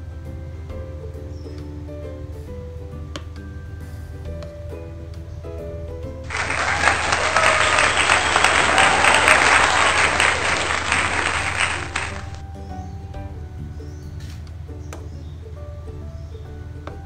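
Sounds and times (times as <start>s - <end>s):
crowd clapping: 6.3s - 12.4s.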